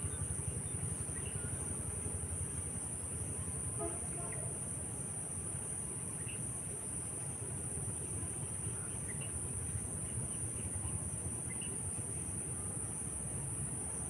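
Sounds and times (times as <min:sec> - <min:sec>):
insects chirring: 0:00.0 - 0:14.0.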